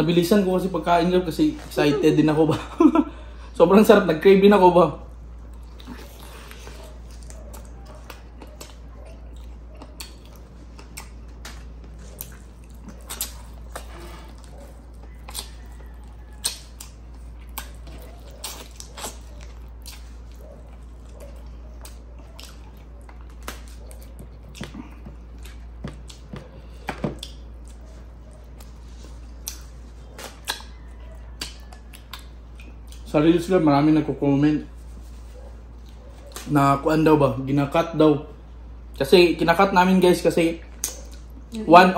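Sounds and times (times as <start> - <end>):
steady low hum: 0.0 - 41.9
chewing: 5.1 - 33.2, 34.9 - 36.5, 40.6 - 41.6
lip smacks: 5.4 - 33.1, 35.6 - 36.5, 40.6 - 41.6
sharp mouth clicks: 40.8 - 41.4.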